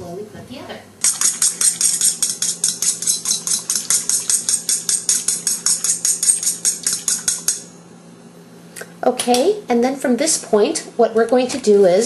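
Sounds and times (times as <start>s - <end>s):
whisk clicking against metal bowl: 1.0s - 7.7s.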